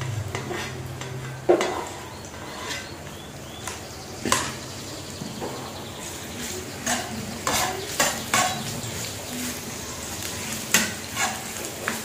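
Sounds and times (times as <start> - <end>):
metal spatula scraping a wok: 0.0 - 3.1, 6.0 - 12.0.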